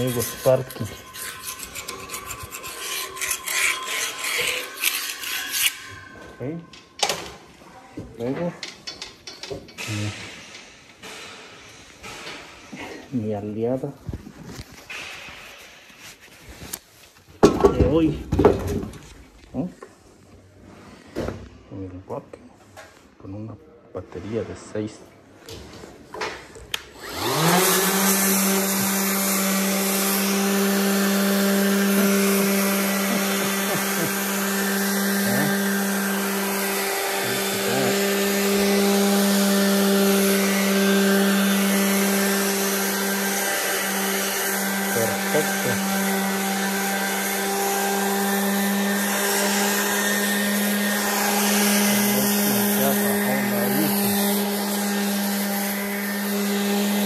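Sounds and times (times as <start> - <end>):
orbital sander whine: 27.0 - 57.0.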